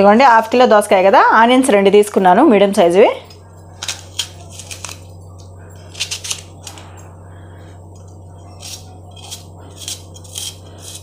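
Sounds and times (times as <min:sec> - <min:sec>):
steady low hum: 0:00.0 - 0:11.0
knife cutting onion: 0:08.4 - 0:11.0.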